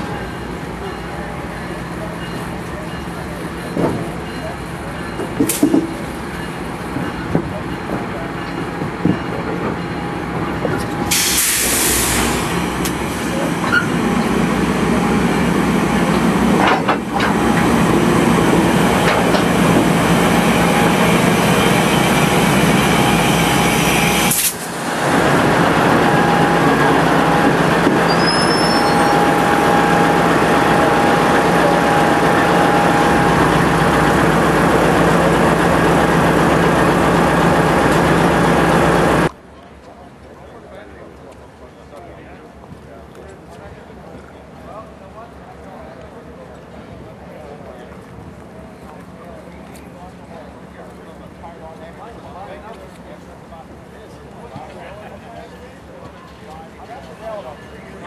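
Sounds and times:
air brakes hissing: 0:11.0 - 0:12.6.

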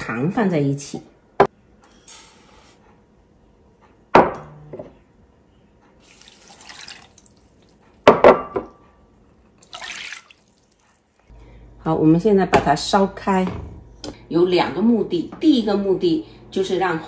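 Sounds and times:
water pouring into pan: 0:06.0 - 0:07.8, 0:09.6 - 0:11.2.

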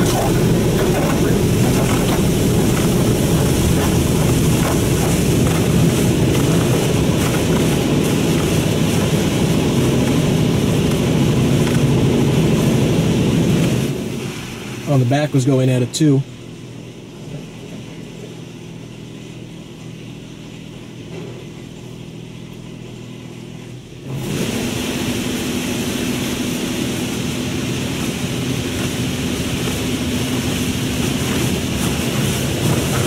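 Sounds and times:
water spray hitting car: 0:00.0 - 0:15.2, 0:24.1 - 0:33.0
car wash machinery hum: 0:00.0 - 0:33.0
droning pump: 0:00.0 - 0:33.0.

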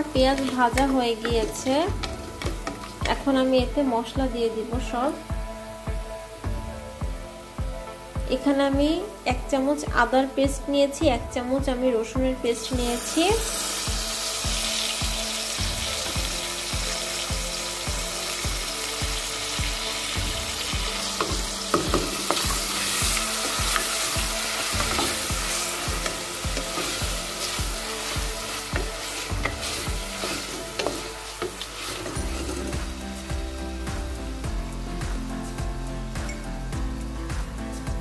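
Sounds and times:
paste sizzling in hot oil: 0:12.6 - 0:35.6.

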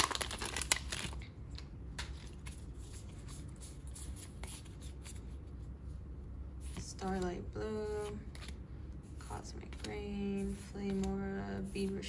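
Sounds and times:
foil pack crinkling: 0:00.0 - 0:01.3
cards rustling and clicking: 0:06.7 - 0:12.0.

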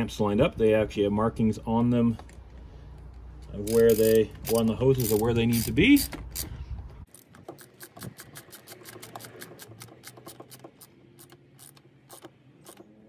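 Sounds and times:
socket ratchet clicking: 0:03.6 - 0:06.5, 0:07.1 - 0:13.0.

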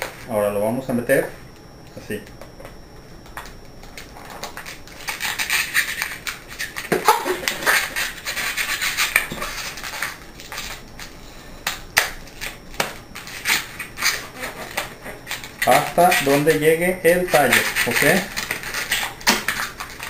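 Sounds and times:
balloons rubbing and scraping: 0:04.1 - 0:10.2, 0:13.2 - 0:20.0.

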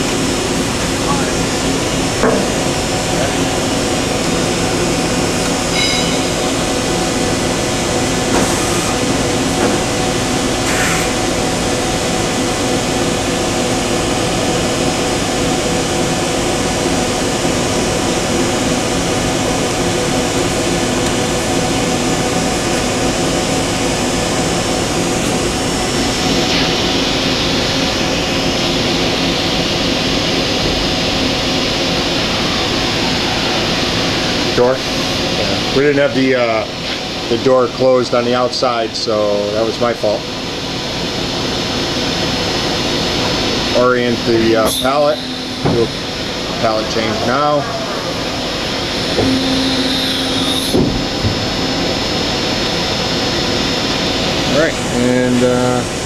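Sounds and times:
machine hum with tones: 0:00.0 - 0:56.0
machine hiss: 0:41.7 - 0:56.0.

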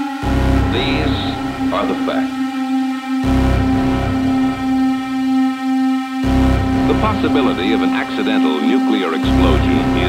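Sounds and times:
dark film score drone: 0:00.0 - 0:10.0
deep rumble: 0:00.2 - 0:02.5, 0:03.2 - 0:05.4, 0:06.2 - 0:08.3, 0:09.2 - 0:10.0.

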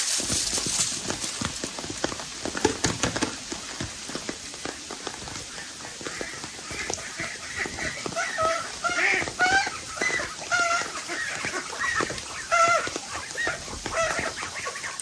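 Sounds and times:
rain pattering: 0:00.0 - 0:15.0
poultry calling faintly: 0:05.4 - 0:15.0.

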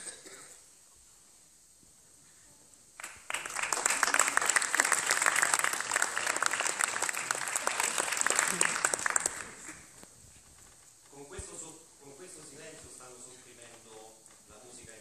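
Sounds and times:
audience applauding: 0:03.0 - 0:09.9.

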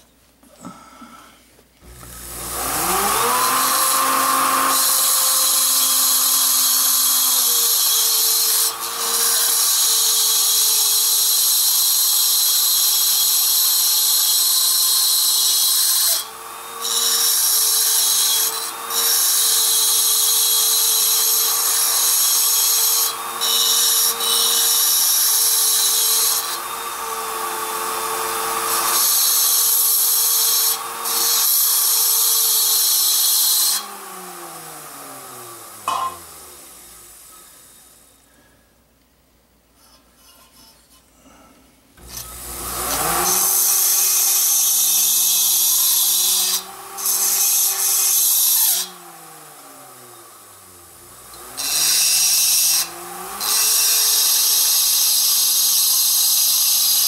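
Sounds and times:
grinder whine: 0:01.8 - 0:38.5, 0:42.0 - 0:57.0.

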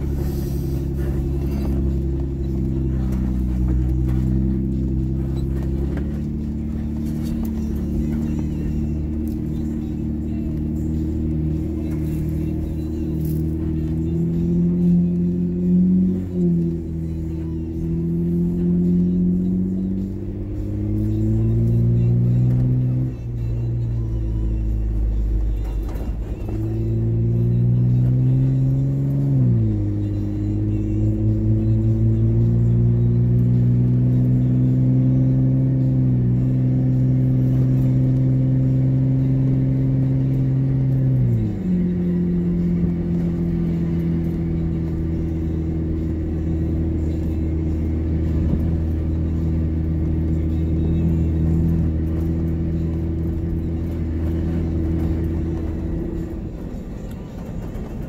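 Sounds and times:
vehicle engine pulling: 0:00.0 - 0:58.0.

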